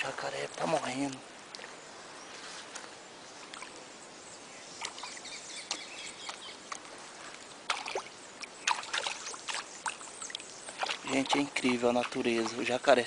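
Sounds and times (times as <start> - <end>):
rustles and crackles: 0.0 - 3.6
steady outdoor hiss: 0.0 - 13.0.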